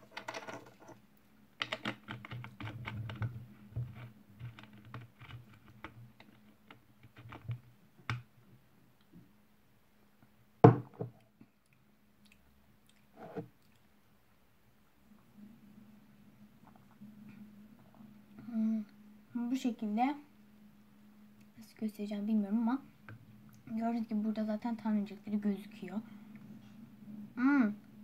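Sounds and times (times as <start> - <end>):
low steady hum: 0.0 - 28.0
sharp knock on table: 10.6 - 11.1.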